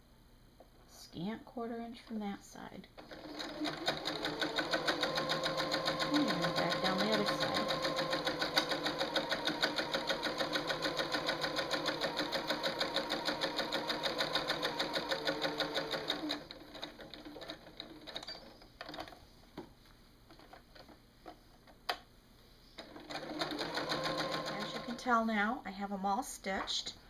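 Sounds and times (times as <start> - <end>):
sewing machine stitching: 3.0 - 19.2, 22.8 - 25.1.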